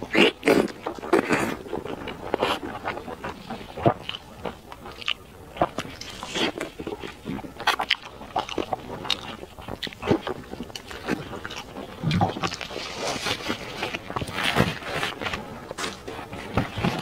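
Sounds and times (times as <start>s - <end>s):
person sucking and slurping: 6.0s - 8.6s, 9.5s - 14.4s.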